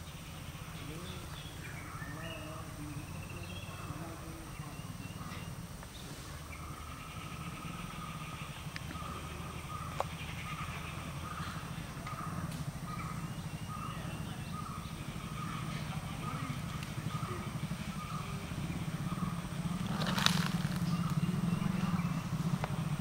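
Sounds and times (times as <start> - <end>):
birds calling with trills: 0.0 - 23.0
steady low rumble: 5.4 - 23.0.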